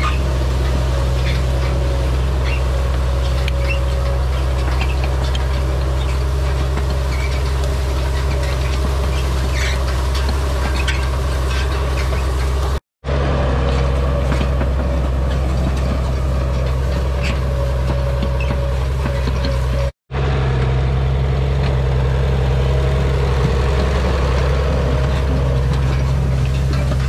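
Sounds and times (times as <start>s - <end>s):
rake tine bars clattering: 0.0s - 12.8s
tractor diesel engine running: 0.0s - 27.0s.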